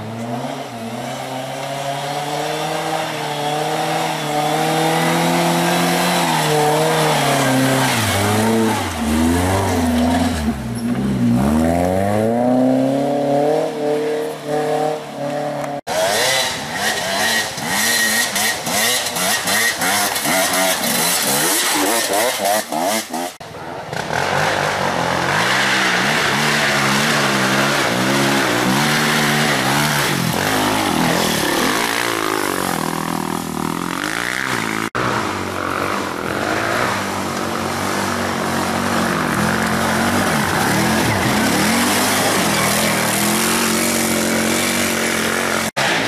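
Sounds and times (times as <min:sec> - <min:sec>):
car engine labouring: 0:00.0 - 0:22.9, 0:24.0 - 0:46.0
dirt bike engine revving: 0:00.0 - 0:46.0.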